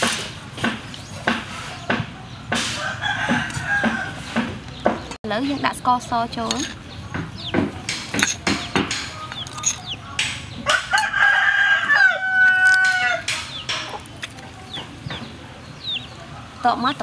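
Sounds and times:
rooster crowing: 2.8s - 4.4s, 10.6s - 13.4s.

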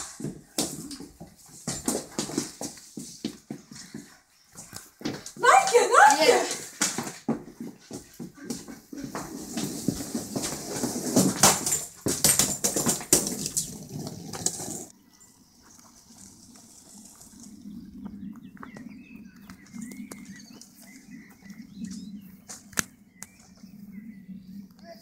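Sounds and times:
suitcase rolling on hard floor: 0.0s - 3.6s, 5.1s - 14.9s
suitcase dragged over grass: 9.0s - 15.0s, 15.6s - 18.3s.

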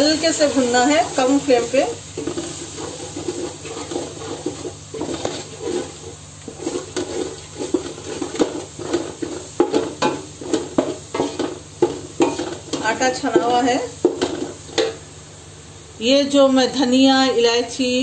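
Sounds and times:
flour roasting in oil: 0.0s - 15.2s
wooden spoon scraping a pot: 2.2s - 15.0s.

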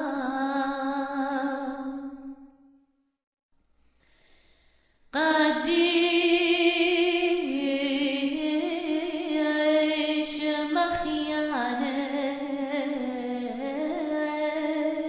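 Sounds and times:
person singing with vibrato: 0.0s - 2.5s.

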